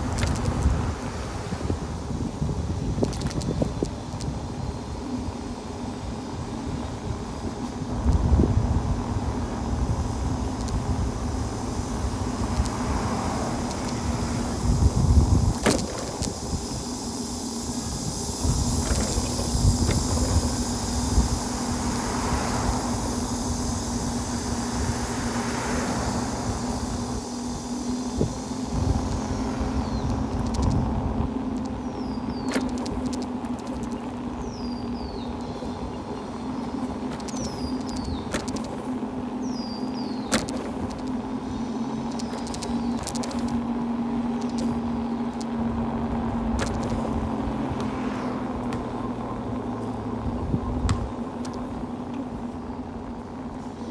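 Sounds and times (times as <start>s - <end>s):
wind buffeting microphone: 0.0s - 5.1s, 6.4s - 25.4s, 26.0s - 51.4s
low motor hum: 0.0s - 53.9s
car passing: 11.0s - 15.0s, 20.0s - 52.0s.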